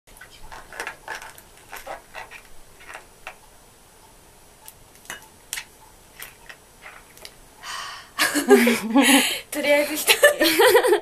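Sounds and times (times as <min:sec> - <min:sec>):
small objects clicking and tapping: 0:00.1 - 0:03.4, 0:04.6 - 0:07.4.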